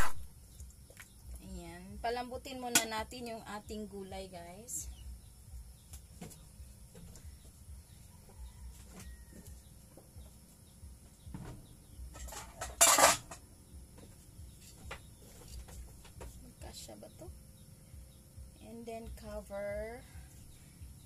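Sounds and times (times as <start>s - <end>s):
kitchenware clattering: 12.2s - 13.4s.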